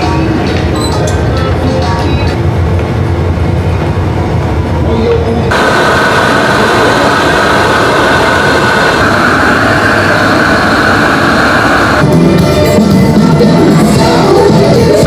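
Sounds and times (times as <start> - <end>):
gas torch flame hissing: 5.5 - 12.0.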